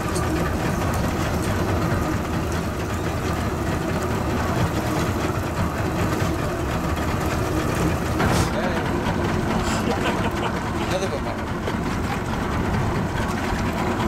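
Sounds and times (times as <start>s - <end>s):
outboard motor idling: 0.0s - 14.0s.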